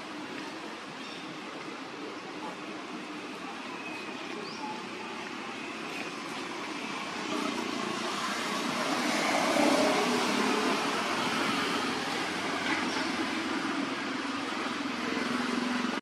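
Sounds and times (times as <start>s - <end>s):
vehicle passing by: 6.6s - 16.0s.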